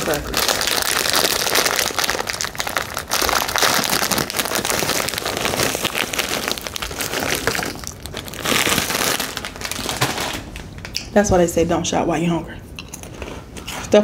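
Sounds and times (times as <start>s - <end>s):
plastic bag crinkling: 0.0s - 10.7s
crackers pattering into soup: 0.0s - 11.0s.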